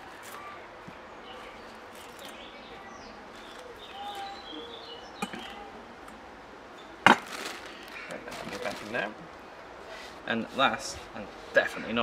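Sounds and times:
small birds chirping: 0.4 - 9.0.

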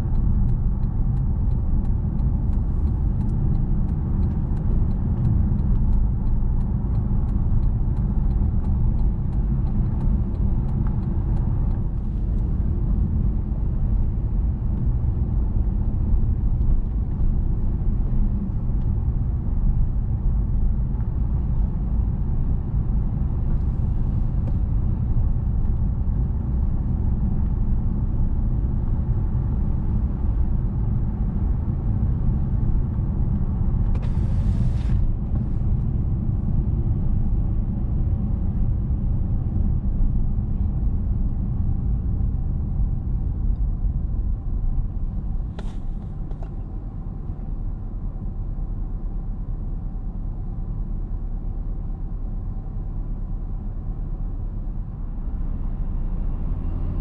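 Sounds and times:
car tyres and engine rumble: 0.0 - 57.0.

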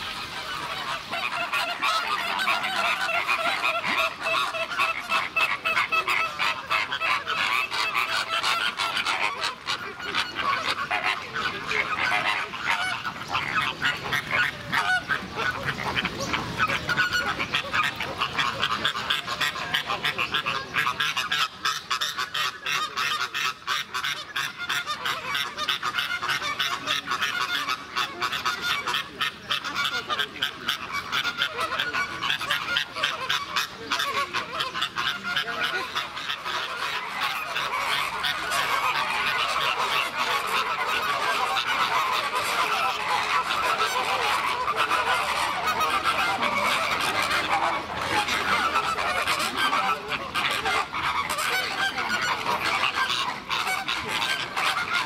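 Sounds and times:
flock of birds honking: 0.0 - 55.0.

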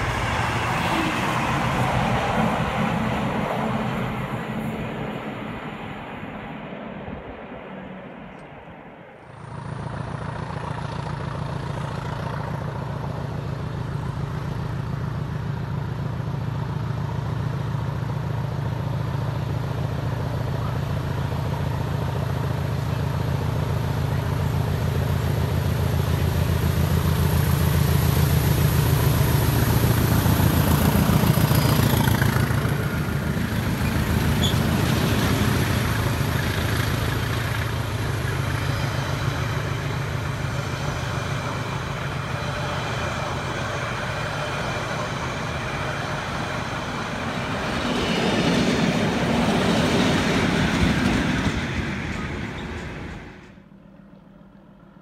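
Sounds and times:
diesel locomotive engine: 0.0 - 55.0
train carriages rolling: 20.4 - 53.7.

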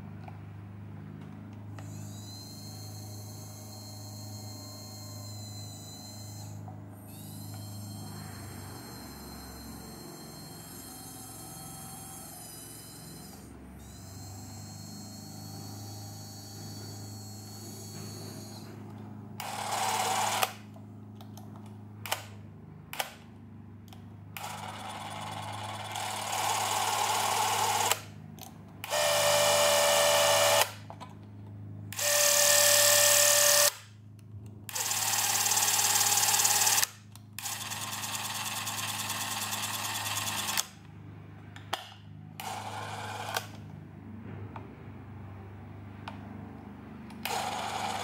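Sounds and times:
movie camera motor whirring: 1.8 - 20.7, 24.4 - 28.2, 28.8 - 30.8, 31.9 - 33.9, 34.7 - 40.8, 42.4 - 43.7, 47.1 - 48.0
sharp control clicks: 21.2 - 23.2.

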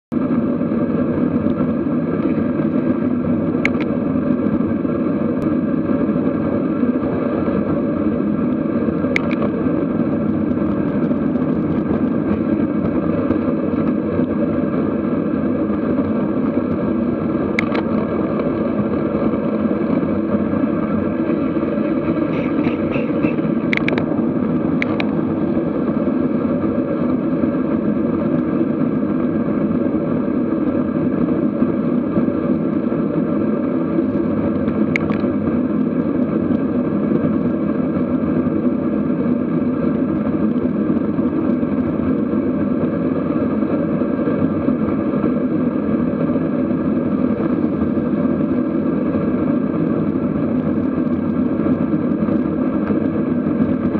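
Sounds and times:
wind and road noise: 0.1 - 53.9
sharp clicks: 3.6 - 3.9, 9.1 - 9.5, 17.6 - 18.0, 23.0 - 24.1, 34.9 - 35.3.

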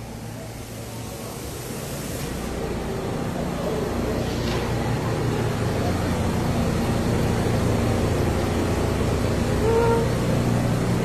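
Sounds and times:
subway train humming: 0.0 - 11.0
brief higher tone: 9.6 - 10.1.

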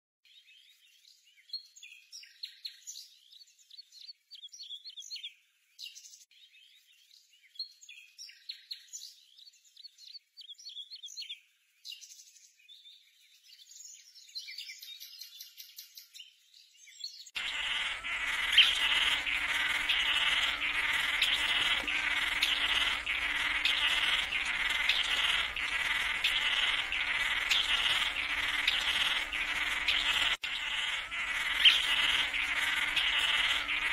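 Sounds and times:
birds chirping: 17.2 - 33.9
pulsing insect chorus: 17.4 - 33.9.

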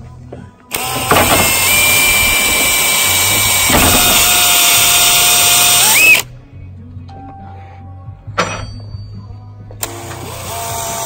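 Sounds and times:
cordless drill motor whine: 0.7 - 6.2, 9.8 - 11.0.

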